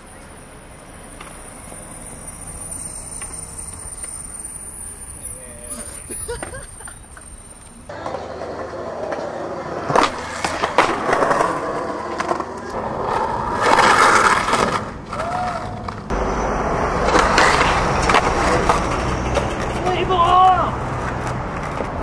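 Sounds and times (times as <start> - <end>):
skateboard wheels rolling: 0.0 - 22.0
skateboard scraping grind: 5.6 - 22.0
skateboard clacks: 7.9 - 16.1, 17.0 - 22.0.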